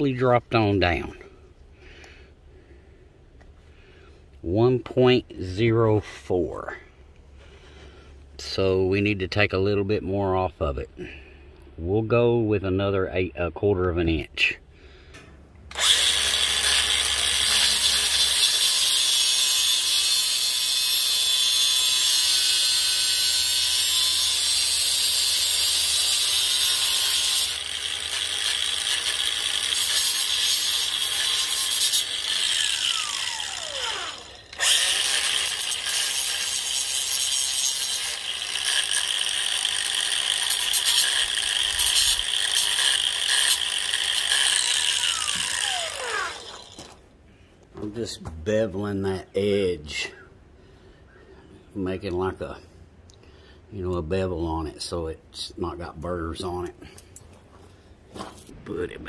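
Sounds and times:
angle grinder grinding metal: 15.7s - 47.0s.

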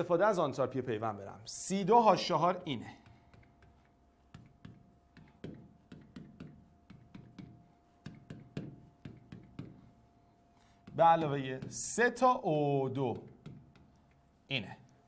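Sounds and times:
pen tapping on screen: 3.0s - 9.9s, 13.0s - 14.2s.

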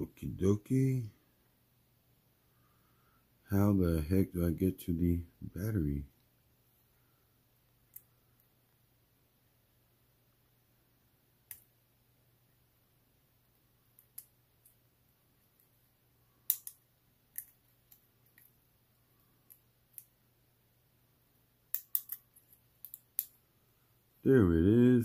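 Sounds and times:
fingernails clicking on battery clip: 21.8s - 22.2s.

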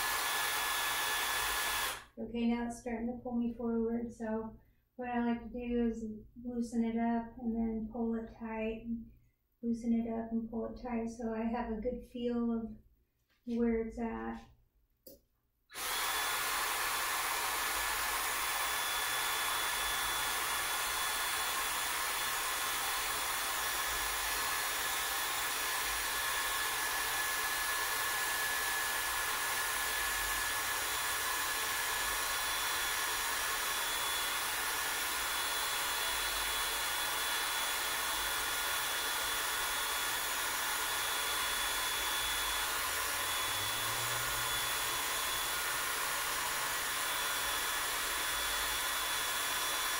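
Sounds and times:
cordless drill motor whirring: 0.0s - 2.1s, 15.7s - 49.9s.

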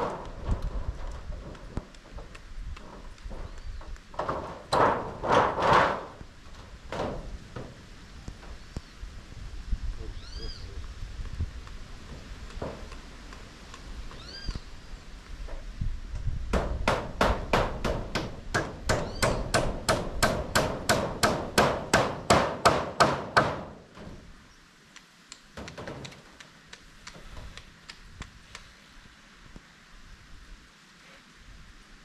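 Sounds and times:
hammer striking metal roofing: 0.0s - 7.8s, 16.5s - 24.2s.

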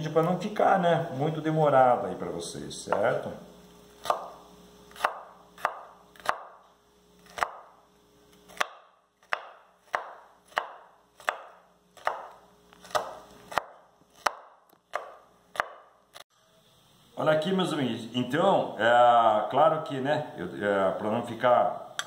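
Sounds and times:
knife chopping on wooden board: 4.0s - 6.6s, 7.2s - 7.7s, 8.5s - 15.9s.

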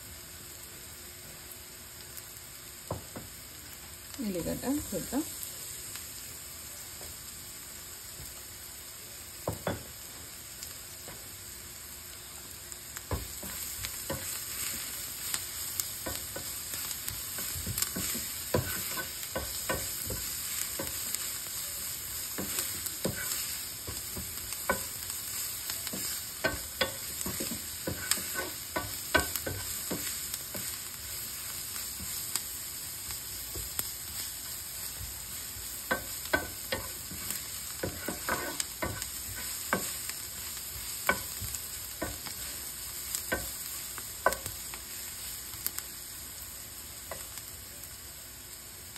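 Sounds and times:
vegetables sizzling in oil: 0.0s - 48.9s
taps on pan: 2.9s - 3.3s, 9.4s - 9.9s, 13.1s - 14.3s, 25.8s - 30.1s, 41.0s - 42.3s, 43.3s - 43.5s, 44.2s - 44.6s
spatula scraping pan: 13.2s - 32.5s, 33.6s - 44.6s.

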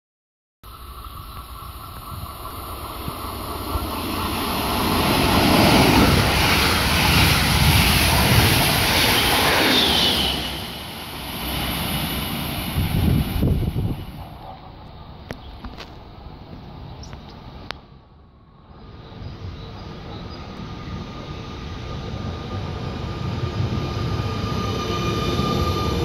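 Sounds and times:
train wheels rumbling on rail: 0.7s - 17.8s, 18.7s - 26.0s
high squeal: 4.0s - 13.0s, 22.4s - 26.0s.

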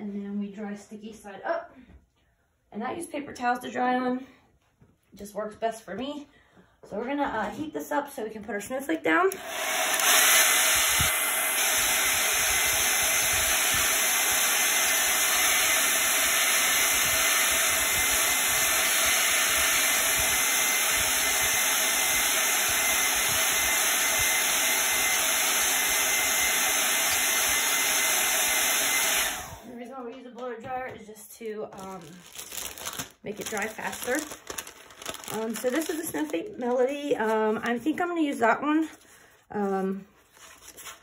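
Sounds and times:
hair dryer blowing: 9.3s - 29.8s, 33.4s - 36.3s.

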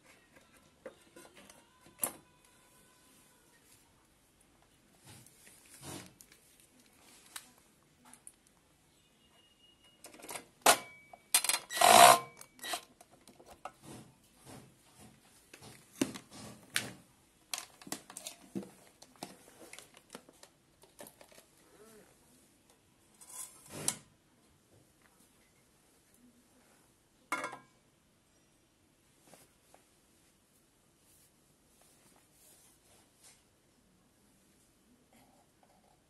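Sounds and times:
hands clicking and knocking plastic: 14.5s - 21.5s.

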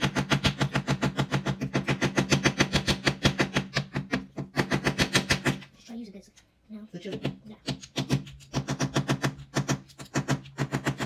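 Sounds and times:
tool tapping and scraping plaster: 0.0s - 5.9s, 7.0s - 11.0s.

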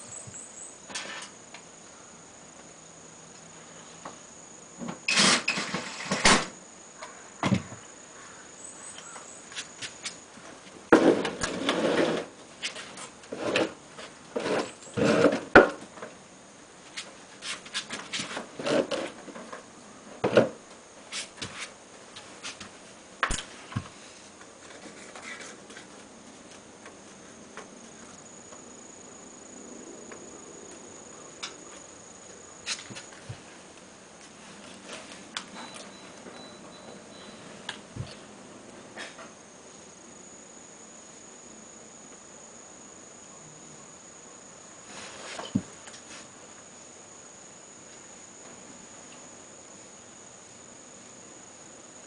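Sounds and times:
faint steady high tone: 34.9s - 38.3s, 39.2s - 52.0s.

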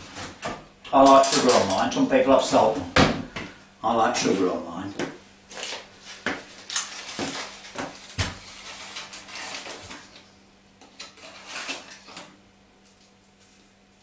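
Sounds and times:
crinkly rustling: 5.5s - 10.2s.

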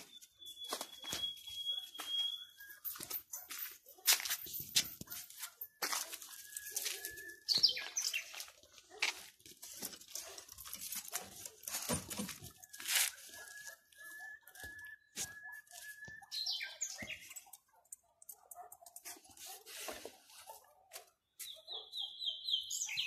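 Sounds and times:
dog yelping: 0.7s - 4.2s
rustling and clicking: 8.7s - 14.1s.

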